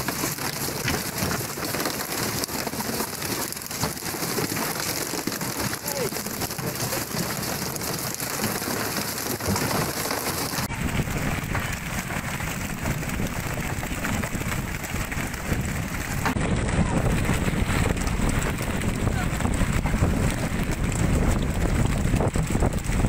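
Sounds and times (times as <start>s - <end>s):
low rumbling noise: 0.0s - 23.0s
wind and water noise: 0.0s - 23.0s.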